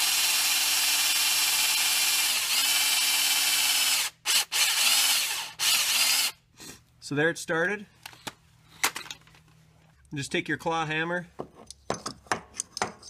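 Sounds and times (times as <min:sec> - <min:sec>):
electric drill whining: 0:00.0 - 0:06.4.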